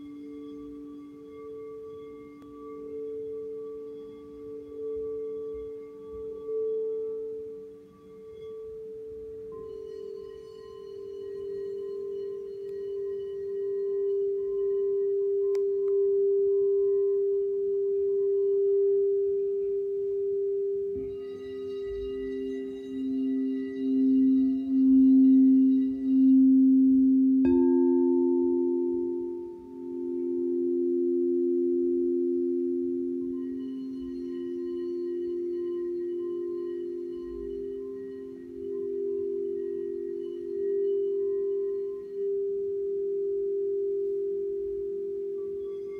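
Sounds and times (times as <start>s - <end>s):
singing bowls ringing: 0.0s - 45.9s
mallet striking bowl: 27.4s - 31.2s.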